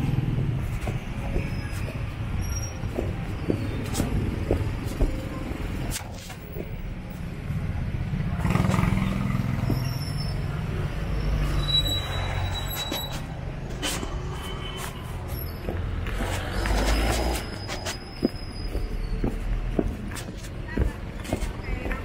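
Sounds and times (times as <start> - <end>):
motorcycles passing close by: 8.3 - 9.7.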